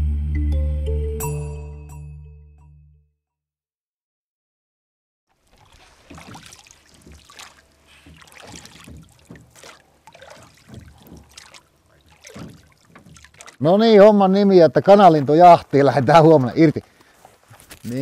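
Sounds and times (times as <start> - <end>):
water lapping and splashing: 5.3 - 17.8.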